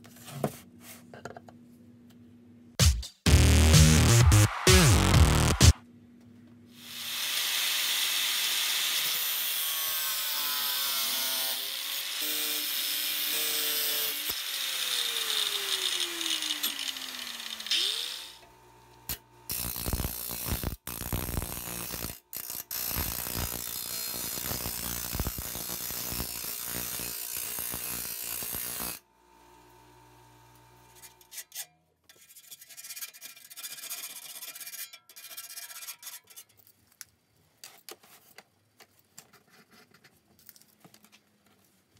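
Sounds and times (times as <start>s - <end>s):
angle grinder cutting steel: 6.8s - 18.4s, 19.1s - 29.0s
bench grinder humming: 6.8s - 31.2s.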